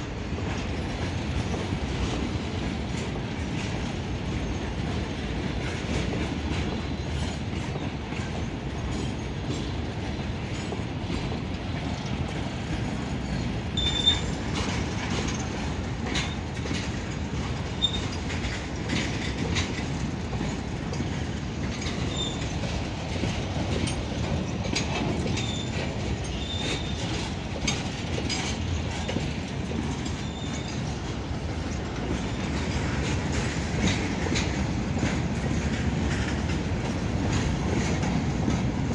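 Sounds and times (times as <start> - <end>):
freight train rumbling past: 0.0 - 38.9
wheels clicking over rail joints: 0.0 - 38.9
high-pitched wheel squeals: 13.8 - 14.3, 25.4 - 27.1.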